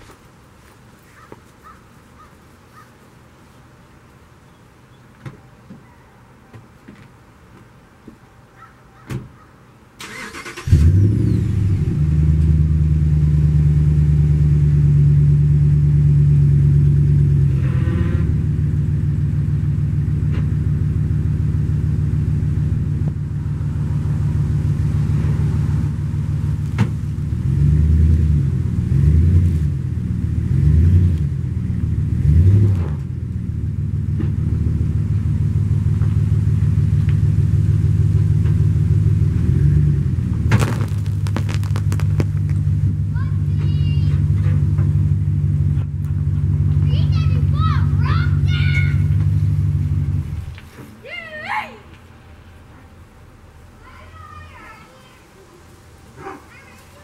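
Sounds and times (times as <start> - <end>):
starter cranking engine: 10.0 - 11.0
engine revving: 10.0 - 37.0
pickup engine idling: 18.3 - 28.9, 33.1 - 50.7.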